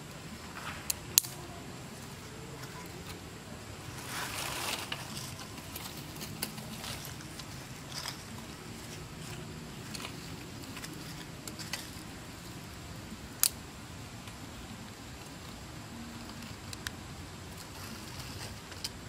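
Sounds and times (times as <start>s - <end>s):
faint steady low hum: 0.0s - 19.0s
leaves and wood rustling: 0.0s - 19.0s
stick cracking: 0.6s - 1.6s, 13.3s - 13.6s.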